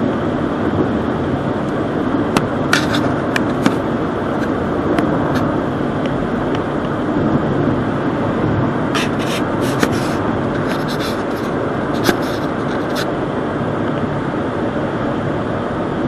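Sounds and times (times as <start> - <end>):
car road and engine noise: 0.0 - 16.0.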